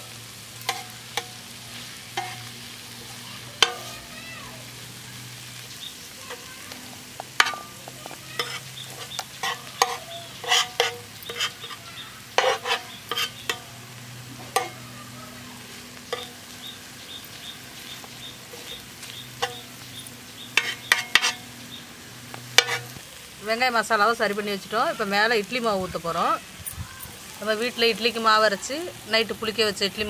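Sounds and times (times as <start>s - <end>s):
light sizzle: 0.0s - 30.0s
metal spatula scraping on griddle: 0.3s - 23.0s.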